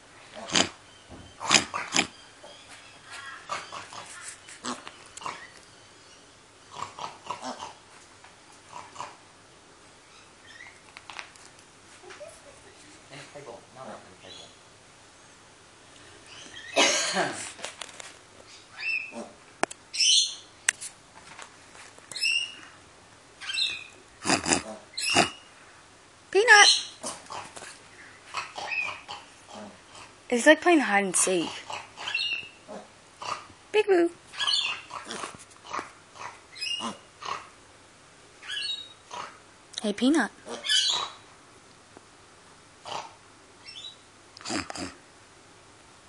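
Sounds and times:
piglet calling: 0:00.3 - 0:00.8, 0:01.4 - 0:02.3, 0:03.3 - 0:05.6, 0:23.4 - 0:25.5, 0:28.3 - 0:30.1, 0:31.4 - 0:33.5, 0:34.3 - 0:37.5, 0:38.4 - 0:39.4, 0:40.4 - 0:41.2, 0:42.9 - 0:45.0
piglet squeaking: 0:00.4 - 0:02.6, 0:23.4 - 0:25.5, 0:34.4 - 0:37.0, 0:40.5 - 0:41.2.

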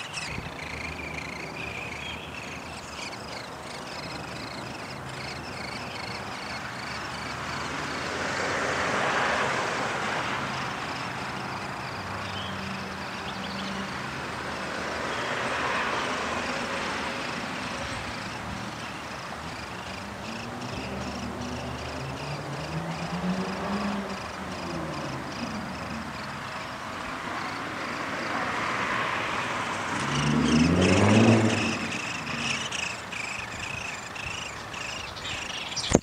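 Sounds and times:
faint bird chirps: 0:30.1 - 0:36.0.

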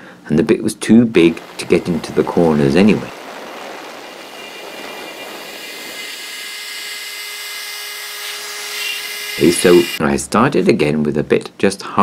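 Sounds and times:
router spindle whirring whine: 0:04.1 - 0:10.0.

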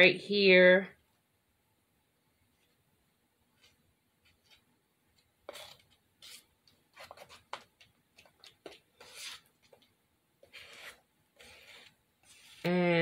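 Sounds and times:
plastic spoon scraping tub: 0:05.4 - 0:12.8.

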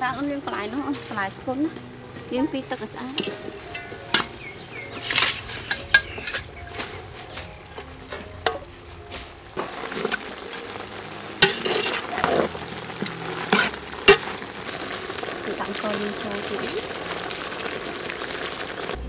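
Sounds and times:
wet rustling of vegetables: 0:00.4 - 0:19.0
metal ladle clinking on pot: 0:03.2 - 0:06.6
ladle scraping pot: 0:03.2 - 0:07.2, 0:09.6 - 0:10.8, 0:11.4 - 0:15.5.

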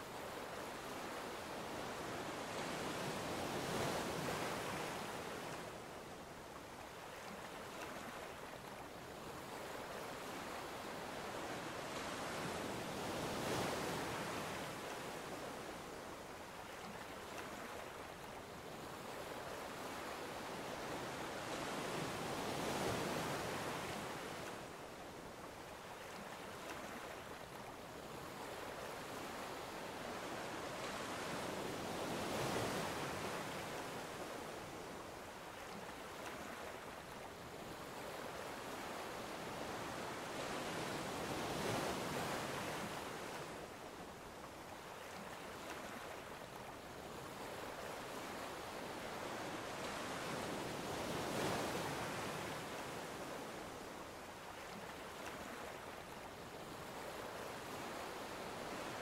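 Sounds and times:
ocean surf breaking on beach: 0:36.3 - 0:44.2, 0:47.1 - 0:54.2.

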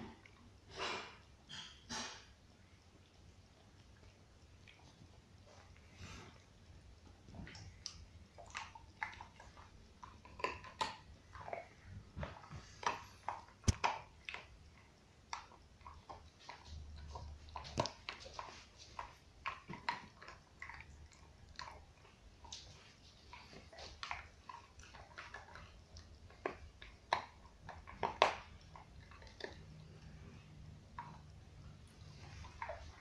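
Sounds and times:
dog gnawing on bone: 0:07.0 - 0:33.0.

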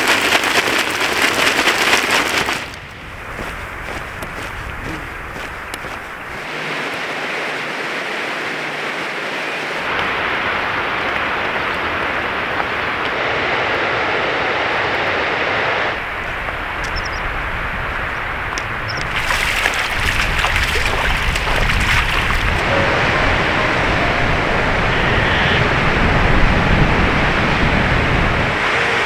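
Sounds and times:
steady rushing noise: 0:00.0 - 0:29.0.

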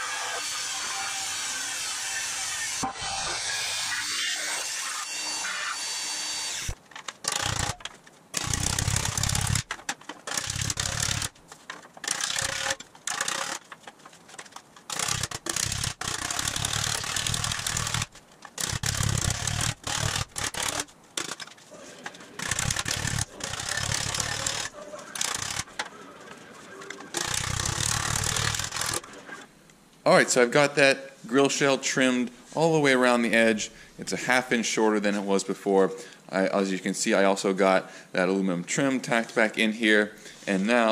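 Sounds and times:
band saw cutting sheet metal: 0:00.0 - 0:06.8, 0:15.0 - 0:20.8, 0:22.4 - 0:25.7.

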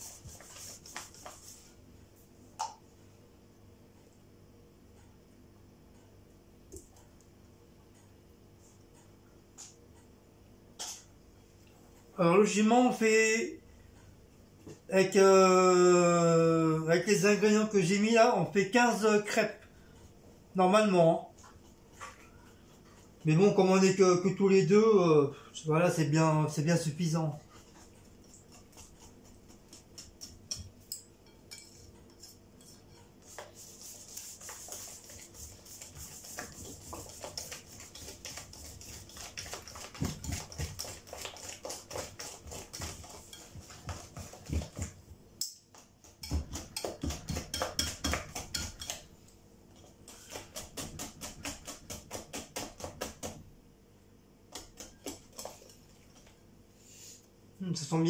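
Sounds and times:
whisk beating batter in bowl: 0:00.0 - 0:01.8, 0:26.6 - 0:45.1, 0:45.8 - 0:49.1, 0:49.8 - 0:53.5, 0:54.5 - 0:56.2.

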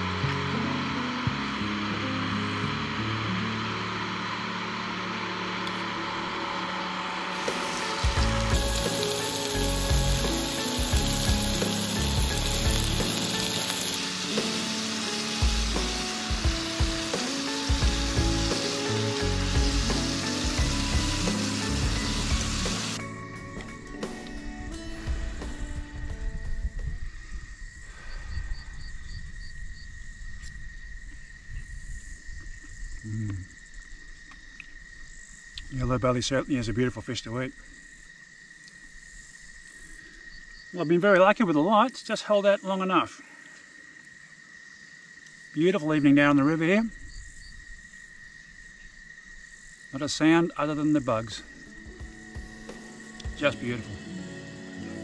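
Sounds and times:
gas stove hissing: 0:00.0 - 0:23.1
insects droning: 0:00.0 - 0:55.0
fish sizzling in a frying pan: 0:07.3 - 0:23.0.

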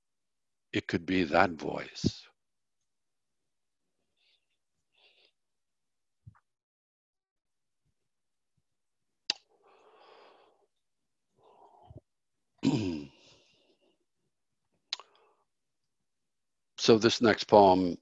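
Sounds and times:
lip clicks: 0:09.3 - 0:09.5, 0:14.9 - 0:15.2
man breathing: 0:09.5 - 0:10.8.

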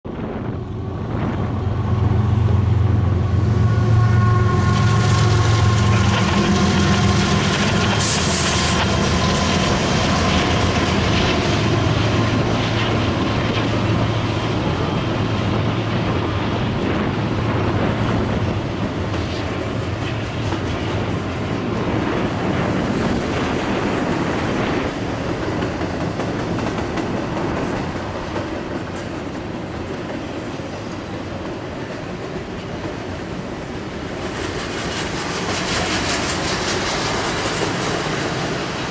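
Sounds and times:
diesel locomotive engines humming: 0:00.1 - 0:38.9
train cars rumbling and clattering: 0:00.1 - 0:38.9
high thin squeal: 0:03.2 - 0:10.6.

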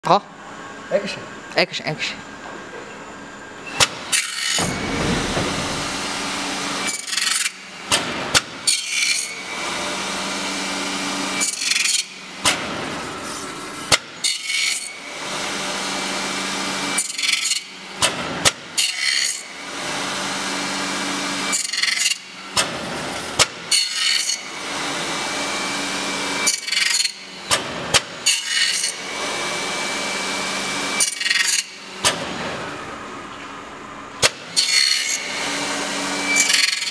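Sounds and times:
machine drives running: 0:03.7 - 0:08.2.

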